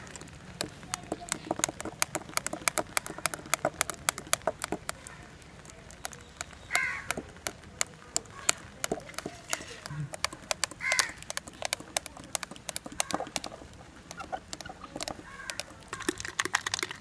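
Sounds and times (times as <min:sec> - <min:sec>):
crow cawing: 0:06.7 - 0:07.2, 0:09.9 - 0:11.3, 0:14.2 - 0:16.2.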